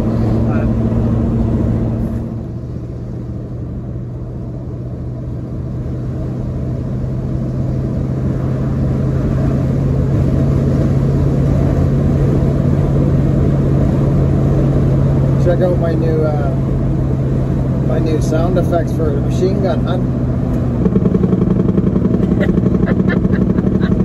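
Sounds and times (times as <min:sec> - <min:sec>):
truck engine and road noise inside cab: 0:00.0 - 0:24.0.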